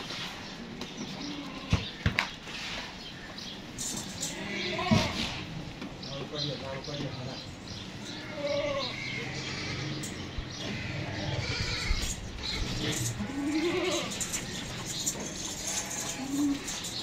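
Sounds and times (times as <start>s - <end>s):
goats bleating: 4.2s - 5.4s, 8.0s - 17.0s.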